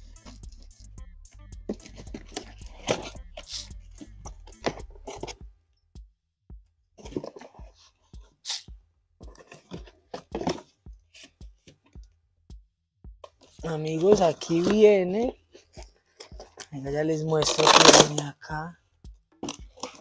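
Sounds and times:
low background music: 0:00.0 - 0:20.0
scissors cutting cardboard: 0:01.7 - 0:03.7, 0:17.4 - 0:18.2
cardboard ripping: 0:17.5 - 0:18.2.

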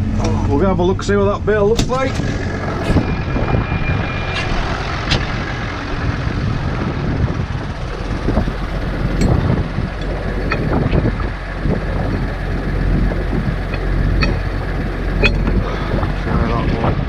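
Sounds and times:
tractor engine running: 0:00.0 - 0:17.0
sharp clicks and knocks: 0:09.1 - 0:11.1, 0:13.6 - 0:15.6.

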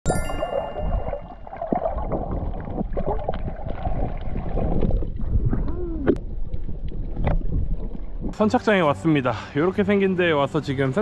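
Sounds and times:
bubbles popping: 0:00.1 - 0:08.4
water sloshing and gurgling: 0:00.1 - 0:08.6.

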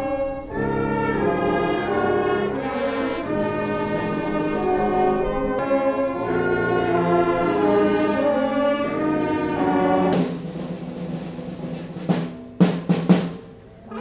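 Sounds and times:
brass band chords: 0:00.0 - 0:14.0
cymbal crash: 0:10.1 - 0:13.6.

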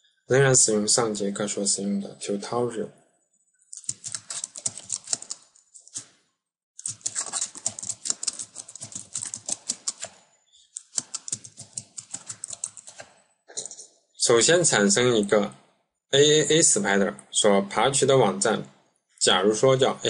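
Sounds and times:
keyboard typing: 0:03.7 - 0:06.1, 0:06.8 - 0:13.9.

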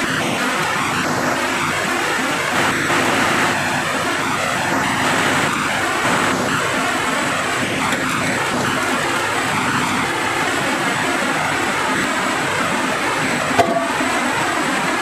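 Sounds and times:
sawmill machinery rushing: 0:00.0 - 0:15.0.

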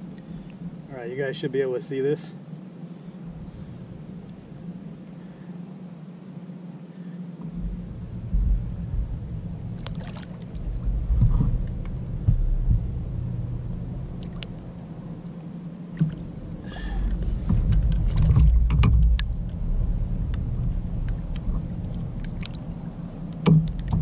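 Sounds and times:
wind rumble on microphone: 0:03.2 - 0:05.2, 0:07.4 - 0:24.0
small water splashes: 0:09.7 - 0:11.7, 0:14.2 - 0:14.7, 0:20.9 - 0:24.0.

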